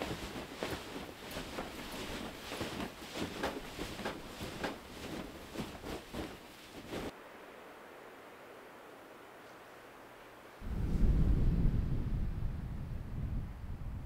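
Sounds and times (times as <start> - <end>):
footsteps crunching in snow: 0.0 - 7.1.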